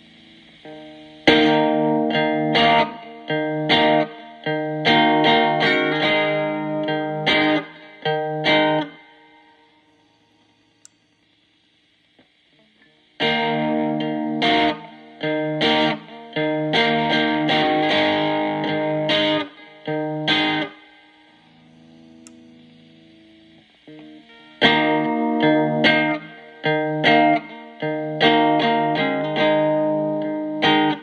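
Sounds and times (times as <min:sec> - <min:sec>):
distorted electric guitar: 0:00.0 - 0:31.0.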